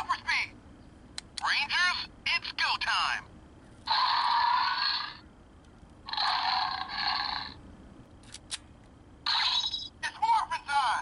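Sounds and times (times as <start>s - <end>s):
harsh hissy electronic toy sound: 9.3s - 9.9s.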